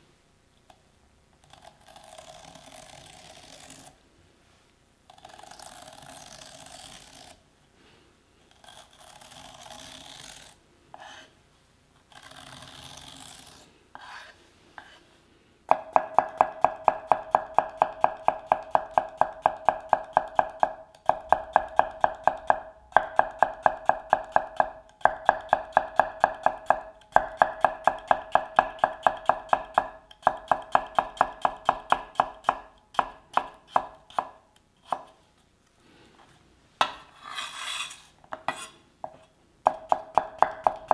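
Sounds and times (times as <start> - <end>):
metal spoon scraping cucumber: 8.5 - 11.4, 12.1 - 15.0, 37.0 - 38.8
knife slicing on cutting board: 12.5 - 15.0, 37.1 - 38.8.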